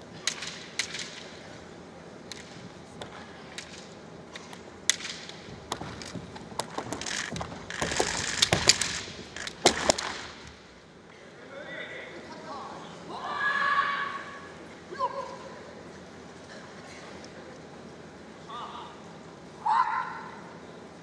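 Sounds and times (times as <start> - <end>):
bamboo swords clacking: 0.2 - 1.4, 2.2 - 10.7
stamps on wooden floor: 5.5 - 10.6
people shouting: 13.1 - 15.2.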